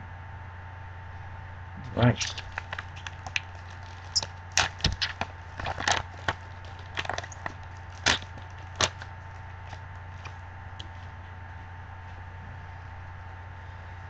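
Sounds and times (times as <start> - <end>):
low steady hum: 0.0 - 14.0
foil wrapper crackling: 2.2 - 11.2.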